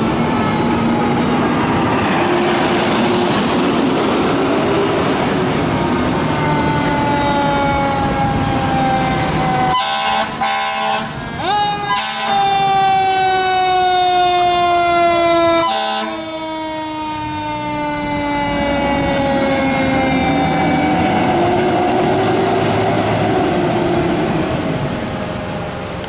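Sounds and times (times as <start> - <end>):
truck engine and road noise: 0.0 - 26.0
mechanical siren wailing: 5.5 - 22.2
air horn blast: 9.7 - 12.5, 15.6 - 16.2.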